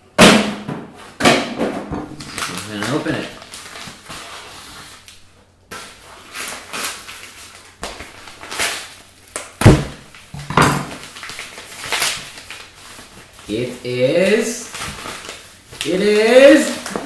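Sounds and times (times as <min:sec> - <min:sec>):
shipping bag crinkling and tearing: 0:02.2 - 0:05.1, 0:05.7 - 0:10.3, 0:10.9 - 0:17.0.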